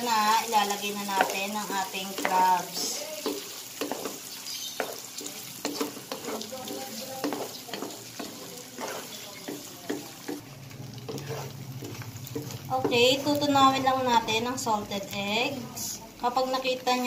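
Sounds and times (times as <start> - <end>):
eggs sizzling in butter: 0.0 - 17.0
wooden spatula scraping pan: 1.1 - 10.4, 11.0 - 13.0.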